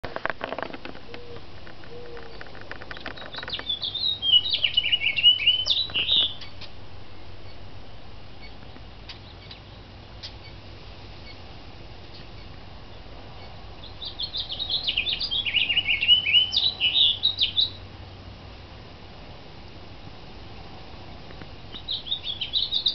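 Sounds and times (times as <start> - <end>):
songbird warbling: 1.0 - 6.8, 8.3 - 17.9, 21.3 - 22.9.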